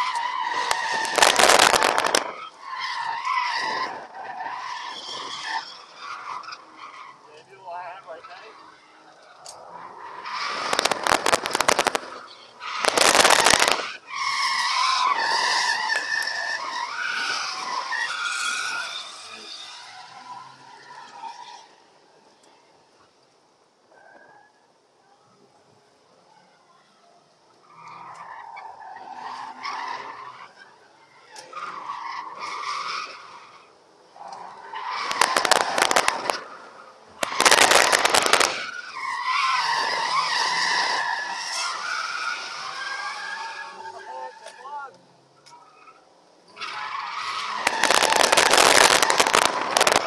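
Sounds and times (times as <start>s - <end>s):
crackling exhaust pops: 0.6s - 2.4s, 10.5s - 12.2s, 12.8s - 13.9s, 35.0s - 36.5s, 37.2s - 38.7s, 47.6s - 50.0s.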